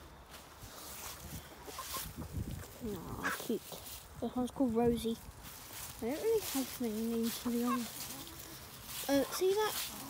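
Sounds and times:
footsteps on dry leaves: 0.0 - 10.0
chicken clucking: 1.4 - 3.8, 6.0 - 10.0.

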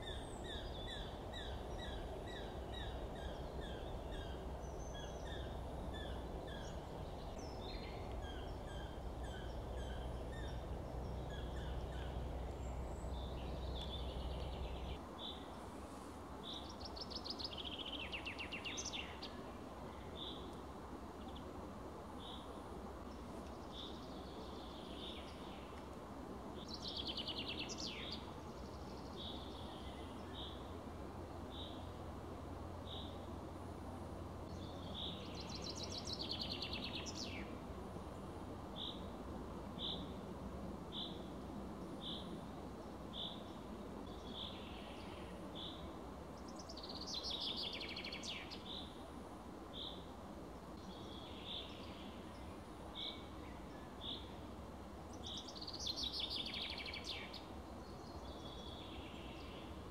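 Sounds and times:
steady low rumble: 0.0 - 15.0
songbirds singing: 0.0 - 25.9, 26.5 - 33.4, 34.4 - 40.2, 40.8 - 59.9.

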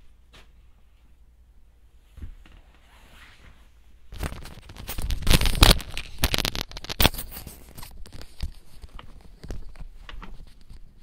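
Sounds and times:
rustling and crackling handling: 4.1 - 11.0.

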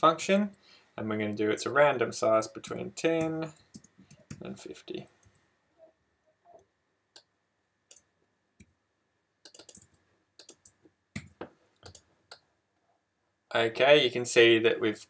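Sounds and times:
computer keyboard keystrokes: 9.5 - 12.1.

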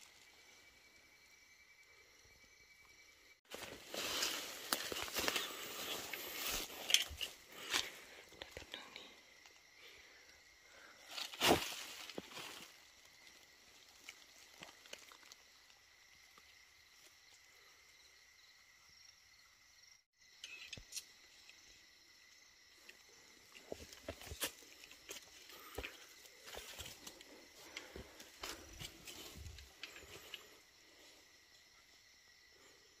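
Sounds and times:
faint high insect tone: 0.0 - 33.0
footsteps crackling through dry leaves: 3.5 - 6.9.

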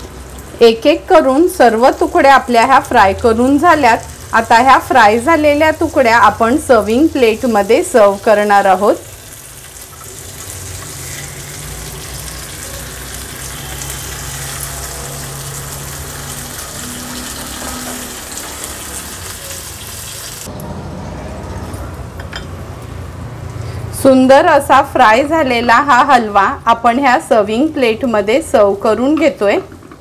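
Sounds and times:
fish sizzling in oil: 0.0 - 20.5.

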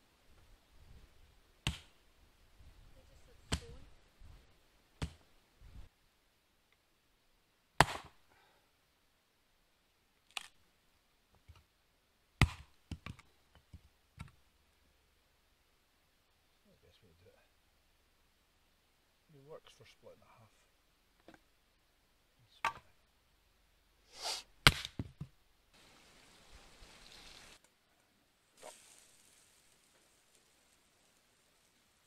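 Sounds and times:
hatchet splitting wood: 7.8 - 8.2, 24.7 - 25.2.

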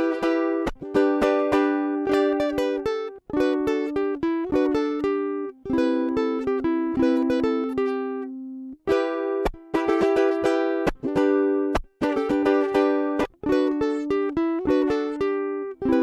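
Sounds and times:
ukulele fingerstyle playing: 0.0 - 16.0.

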